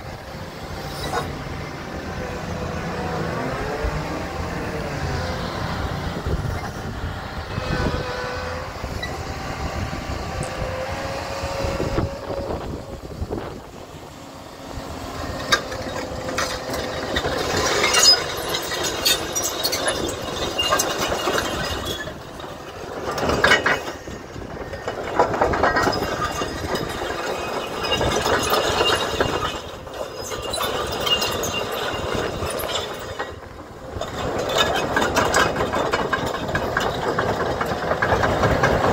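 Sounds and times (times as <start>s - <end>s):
excavator diesel engine: 0.0s - 38.9s
metallic clanks and creaks: 15.2s - 38.9s.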